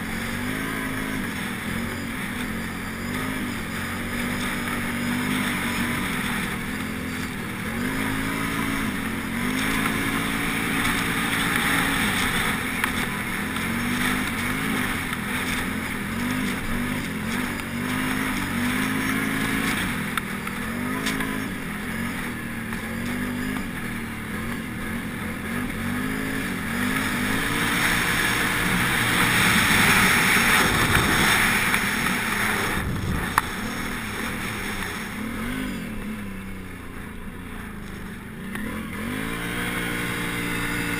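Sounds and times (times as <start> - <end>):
atv engine revving: 0.0 - 40.9
wind on microphone: 32.6 - 33.7.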